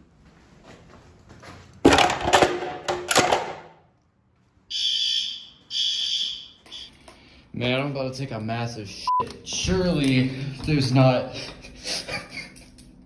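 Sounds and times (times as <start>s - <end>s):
harsh fire alarm horn blast: 4.7s - 6.9s
high steady horn tones: 4.7s - 7.0s.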